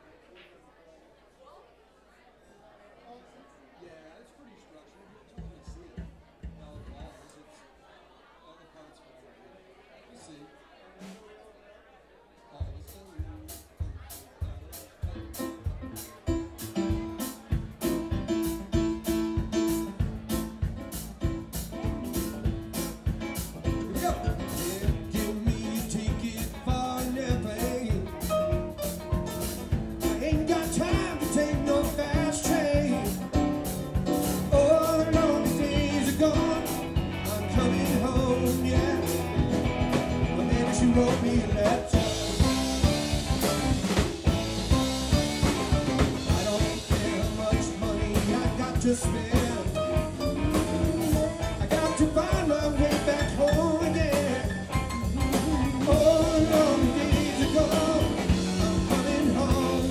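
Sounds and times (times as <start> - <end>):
live band playing a song: 12.8 - 59.9
person singing: 23.8 - 29.4, 30.0 - 43.6, 46.2 - 59.9.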